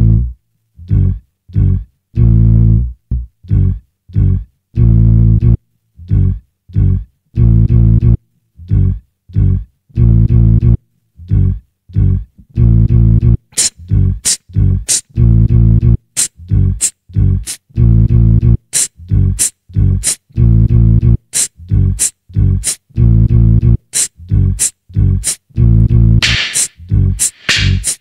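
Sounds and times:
deep pitched beatbox bass: 0.0 - 28.0
sharp hi-hat-like clicks: 13.6 - 15.1, 18.8 - 20.2, 21.4 - 22.8, 23.9 - 25.4, 26.2 - 28.0.

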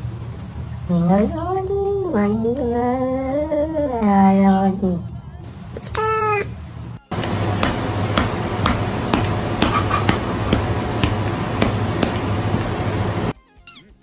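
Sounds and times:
steady hiss: 5.4 - 13.3
low hum: 6.6 - 13.3.

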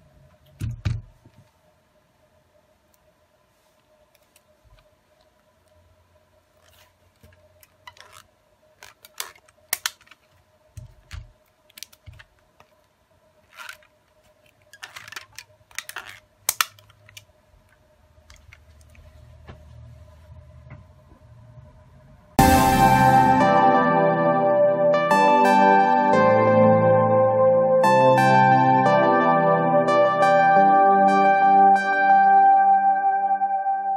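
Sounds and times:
faint steady hum: 0.0 - 22.4.

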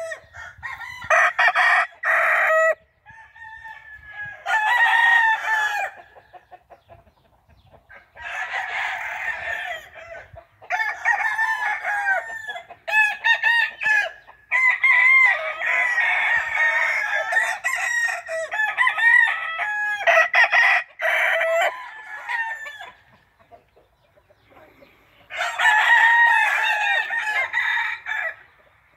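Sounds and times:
rooster crowing: 0.0 - 6.0, 8.2 - 23.0, 25.3 - 28.5
chickens clucking: 5.9 - 8.4, 14.2 - 14.5, 22.6 - 25.7, 28.4 - 28.9.

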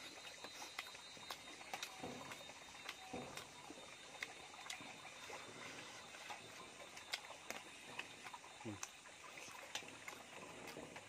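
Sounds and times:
mouth chewing wet smacks: 0.0 - 3.5, 6.9 - 10.8.

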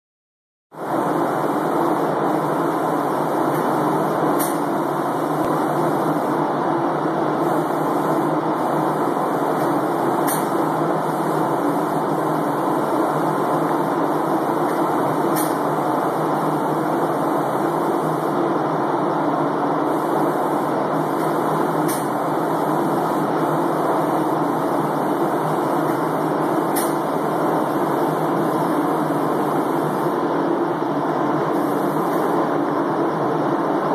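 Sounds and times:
spray gun air rushing: 0.8 - 6.5, 7.4 - 18.4, 19.9 - 30.2, 31.5 - 32.5.

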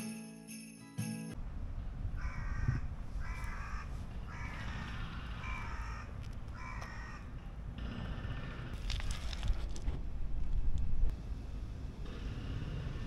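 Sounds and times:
low outdoor rumble: 1.4 - 13.0
crow cawing: 2.2 - 7.3.

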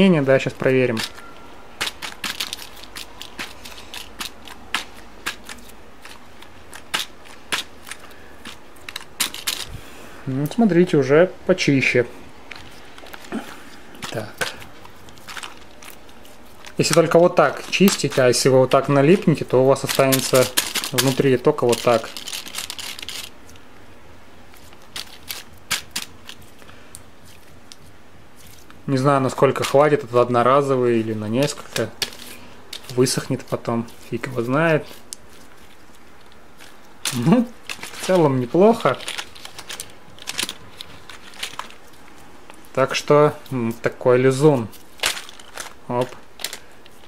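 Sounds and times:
slime gel rustle: 0.0 - 10.9, 11.8 - 23.6, 24.4 - 47.0
plastic keyboard keys clicking: 1.8 - 9.7, 19.8 - 23.3.

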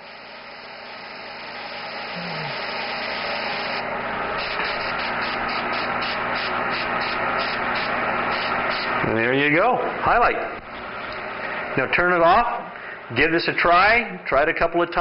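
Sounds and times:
airbrush hissing: 0.0 - 3.8, 4.4 - 9.0.

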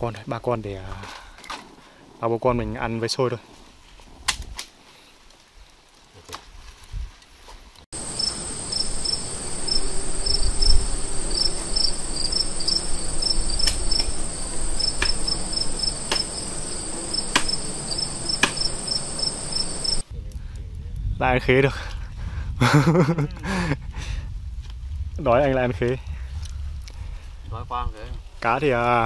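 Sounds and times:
insects buzzing and chirping: 8.0 - 20.0
sharp chopping knocks: 14.9 - 15.2, 16.1 - 16.3, 17.3 - 17.6, 18.4 - 18.7.

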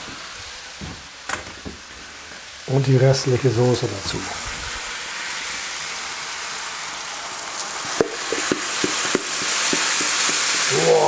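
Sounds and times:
chicken sizzling in oil: 0.0 - 11.0
sauce popping and spattering: 4.3 - 11.0.

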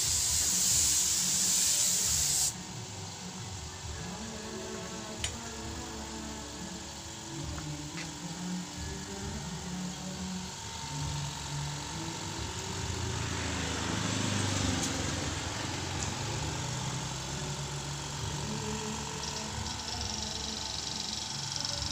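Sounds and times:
thin high hiss: 0.0 - 2.6
engine running: 2.0 - 21.9.

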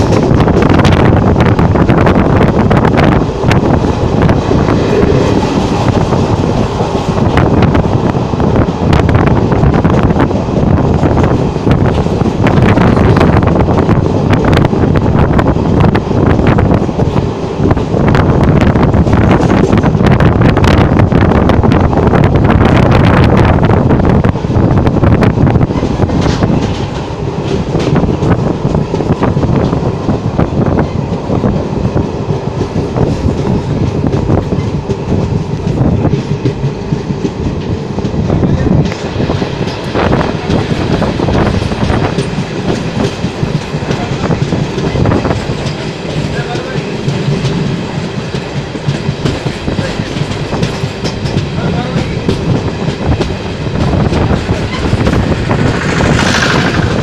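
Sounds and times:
clacks over rail joints: 0.0 - 1.8, 25.5 - 29.8, 32.5 - 57.0
train wheels rumbling: 0.0 - 57.0.

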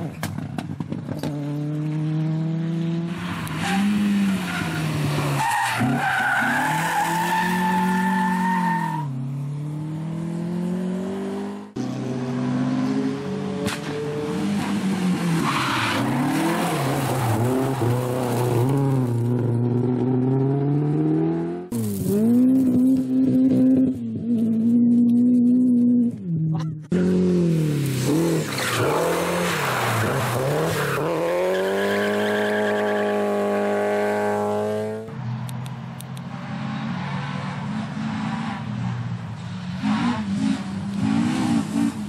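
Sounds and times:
rally car engines revving: 0.0 - 42.0
tyre squeal: 3.2 - 9.1.

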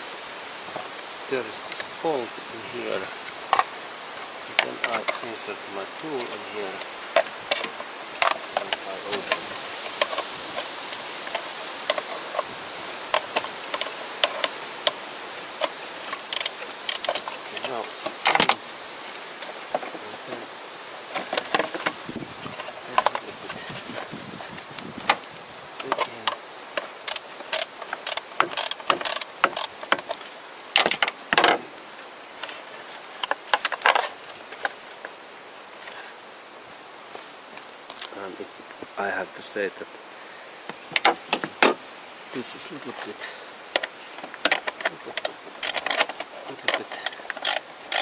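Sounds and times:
steady hiss: 0.0 - 48.0
ratchet clicking: 16.1 - 17.3, 27.0 - 29.8, 45.6 - 46.1, 47.0 - 48.0
plastic parts clinking: 43.8 - 48.0
socket tool clicking: 47.3 - 48.0.

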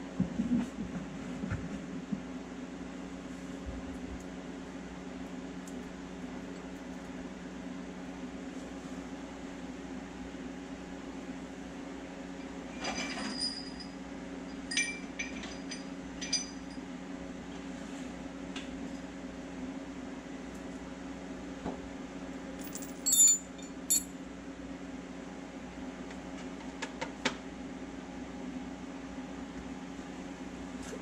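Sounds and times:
metal parts clinking: 22.6 - 24.1.

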